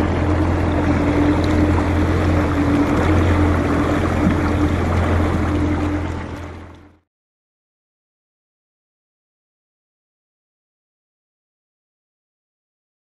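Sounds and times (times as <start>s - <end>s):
boat motor drone: 0.0s - 7.1s
water rushing along hull: 0.0s - 7.1s.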